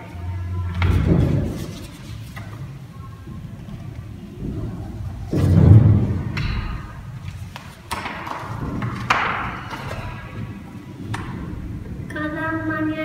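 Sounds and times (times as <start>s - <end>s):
paper rustling: 1.2s - 2.7s.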